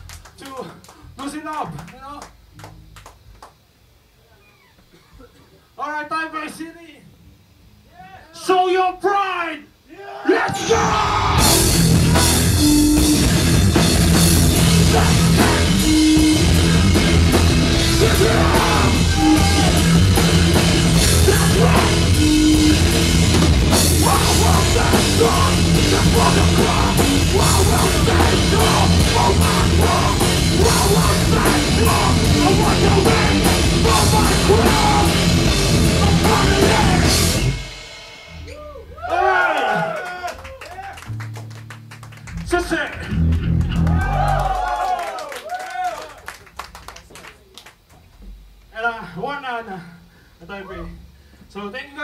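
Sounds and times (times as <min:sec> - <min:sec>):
shouted vocals: 0:07.9 - 0:11.8, 0:14.6 - 0:15.8, 0:17.8 - 0:20.2, 0:21.0 - 0:22.5, 0:23.9 - 0:37.2, 0:38.5 - 0:41.1, 0:43.7 - 0:46.2
drum kit pounding: 0:10.4 - 0:39.8
bass guitar: 0:10.5 - 0:39.1, 0:40.9 - 0:44.9
distorted electric guitar: 0:10.6 - 0:38.5, 0:41.1 - 0:44.4.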